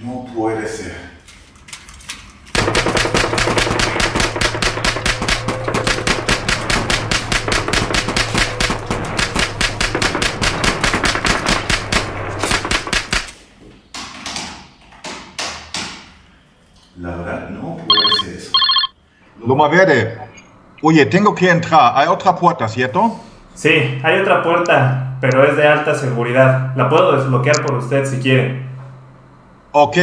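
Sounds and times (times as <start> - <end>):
automatic gunfire: 2.6 - 13.4.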